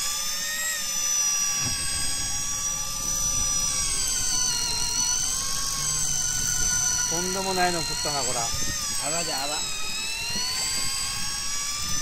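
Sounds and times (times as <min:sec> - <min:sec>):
fishing reel motor whining: 0:00.0 - 0:12.0.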